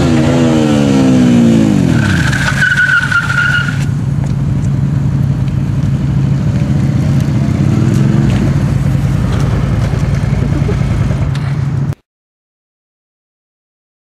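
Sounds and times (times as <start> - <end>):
vehicle engine running: 3.2 - 12.0.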